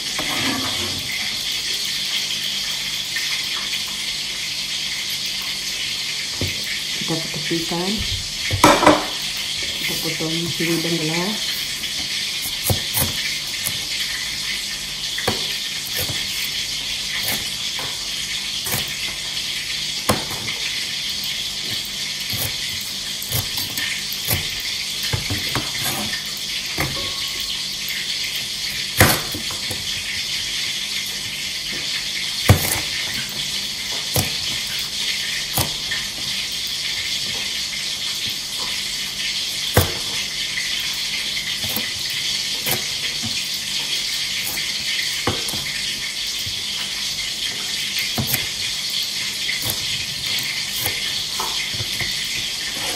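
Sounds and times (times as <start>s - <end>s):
cleaver chopping on plastic board: 12.4s - 13.9s, 15.2s - 16.6s, 29.0s - 29.8s, 32.5s - 33.0s, 39.7s - 40.2s, 48.1s - 48.6s.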